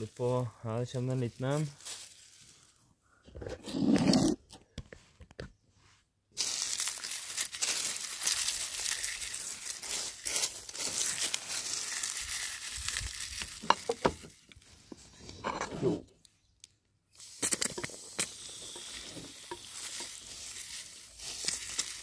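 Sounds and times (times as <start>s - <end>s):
dry leaves crackling: 0.0s - 2.8s, 6.4s - 14.8s, 17.8s - 22.0s.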